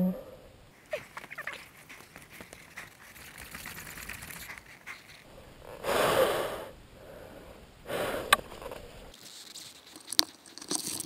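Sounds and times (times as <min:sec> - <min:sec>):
heavy breath close to microphone: 0:04.4 - 0:08.8.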